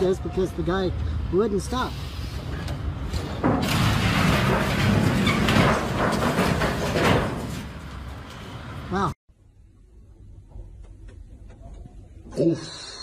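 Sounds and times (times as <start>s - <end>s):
truck box crunching and knocking: 3.4s - 8.5s.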